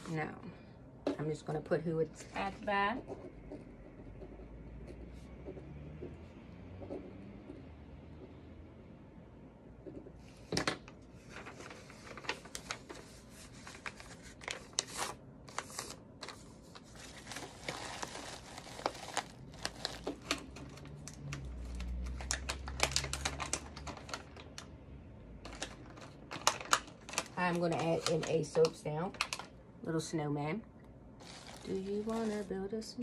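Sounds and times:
paper and packing rustling: 0:10.5 - 0:24.6, 0:25.4 - 0:29.5, 0:31.2 - 0:33.0.

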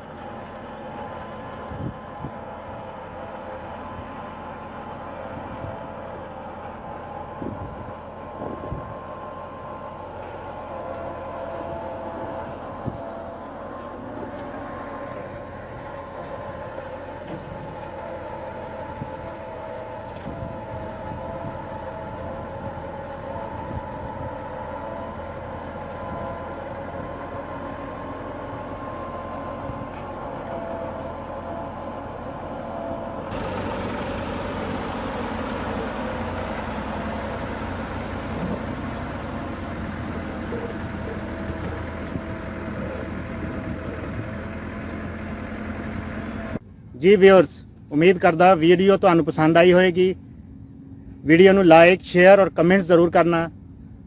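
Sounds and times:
tractor diesel engine whining: 0:00.0 - 0:54.0
tractor engine rumble: 0:00.0 - 0:54.0.

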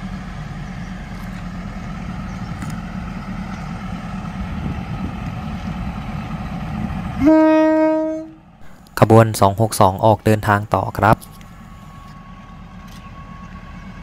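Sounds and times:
diesel railcar engine drone: 0:00.0 - 0:14.0
train horn: 0:07.2 - 0:08.4.

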